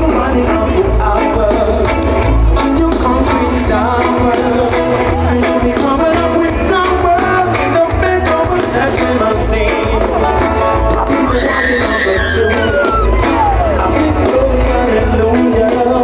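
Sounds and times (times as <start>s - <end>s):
drum beat: 0.0s - 16.0s
heavy bass: 0.0s - 16.0s
person singing lead vocal: 0.0s - 16.0s
reggae band playing live: 0.0s - 16.0s.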